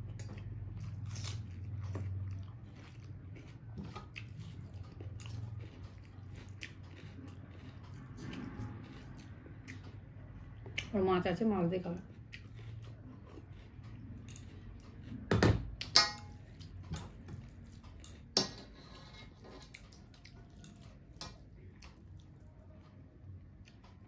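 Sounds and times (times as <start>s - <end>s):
food mixed by hand on metal plate: 15.8s - 22.2s
metal dishes clanking: 18.0s - 19.8s.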